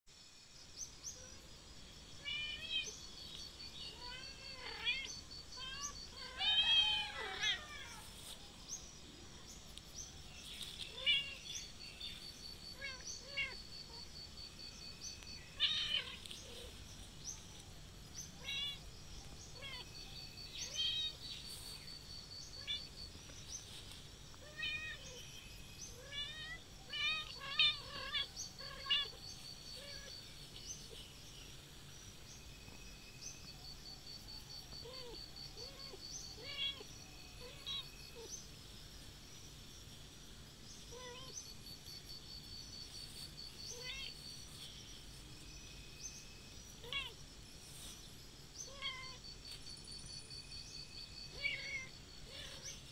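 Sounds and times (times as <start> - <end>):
kittens mewing: 26.0 - 31.0, 51.3 - 52.8.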